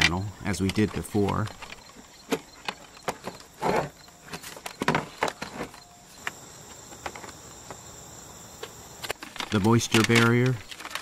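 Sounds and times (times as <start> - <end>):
insect chirring: 0.0 - 11.0.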